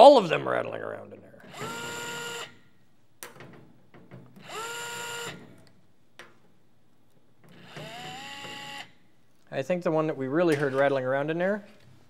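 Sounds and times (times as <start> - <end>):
electric screwdriver whining: 1.4 - 2.6, 4.4 - 5.5, 7.5 - 8.9.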